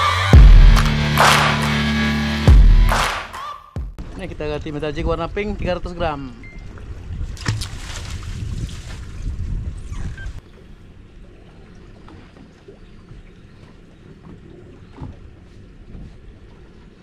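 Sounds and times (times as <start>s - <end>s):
low rumble: 0.3s - 3.0s
wind buffeting microphone: 4.0s - 11.3s.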